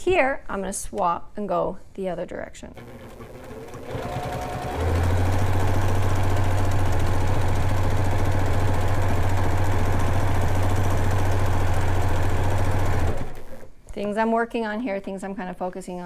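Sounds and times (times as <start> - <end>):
sewing machine stitching: 2.8 - 13.7.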